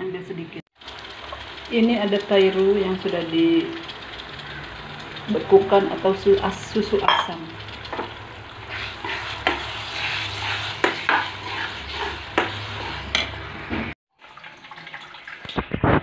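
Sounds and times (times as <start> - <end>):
masala sizzling in a frying pan: 0.8 - 13.7
metal spatula scraping a pan: 8.7 - 13.4.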